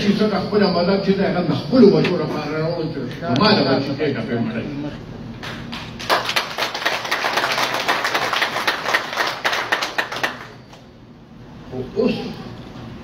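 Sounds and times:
audience applauding: 5.4 - 10.9.

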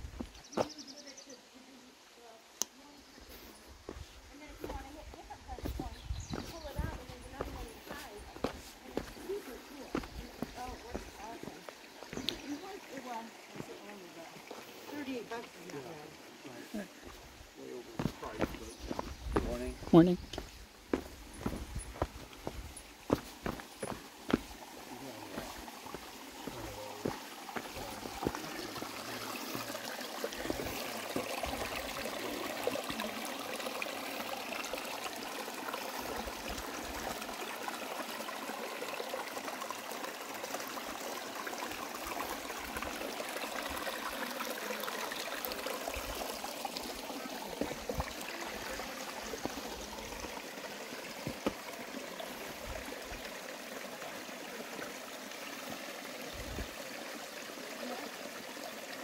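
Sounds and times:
creek trickling over rocks: 0.0 - 59.0.

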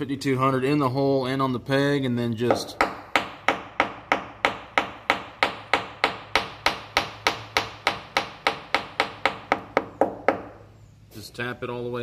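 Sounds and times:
hammer tapping wooden peg: 2.4 - 10.6.

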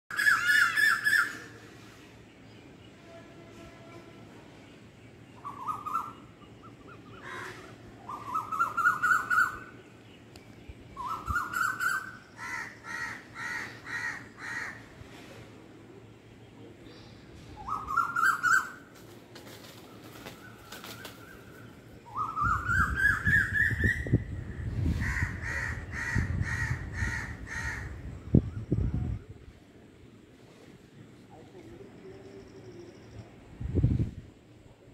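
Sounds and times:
bird calling: 0.1 - 2.0, 5.3 - 15.0, 16.8 - 18.9, 19.6 - 28.7.

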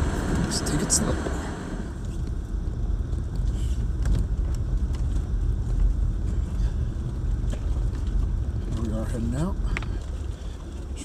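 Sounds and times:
low rumble inside car cabin: 0.0 - 11.0.

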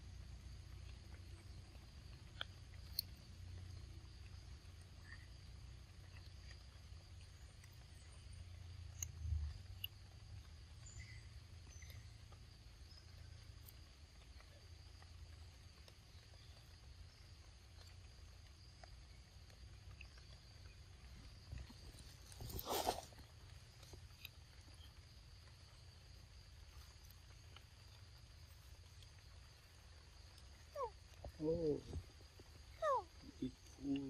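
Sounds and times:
insects droning: 0.0 - 34.0.

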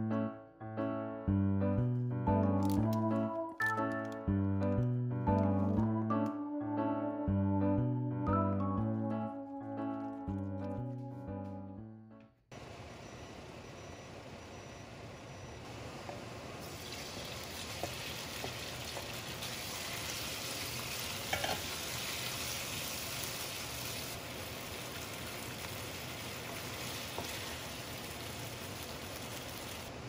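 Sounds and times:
meat sizzling in hot oil: 16.6 - 29.9.

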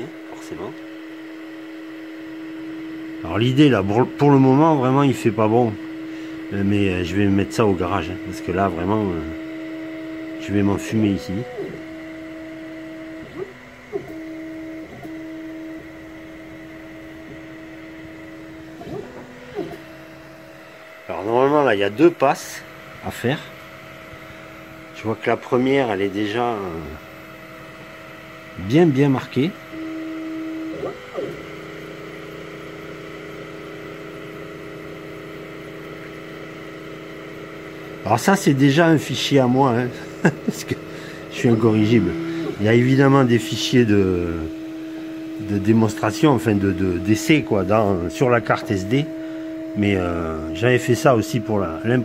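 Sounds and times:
stepper motors whining: 0.0 - 52.0
cooling fan hiss: 3.0 - 52.0
faint steady high tone: 10.7 - 11.9, 41.4 - 43.8.

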